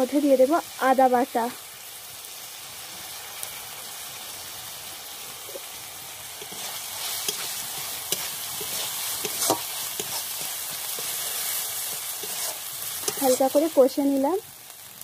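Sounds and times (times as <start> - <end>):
onions sizzling in oil: 0.0 - 15.0
spatula scraping a wok: 5.5 - 13.9.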